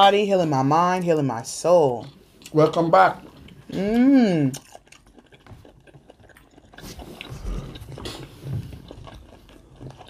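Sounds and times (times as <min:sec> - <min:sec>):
chewing: 0:00.7 - 0:10.0.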